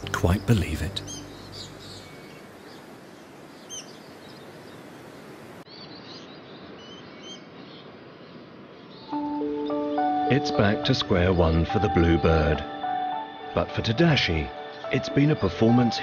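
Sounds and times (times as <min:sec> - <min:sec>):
steady rainforest hiss: 0:00.0 - 0:16.0.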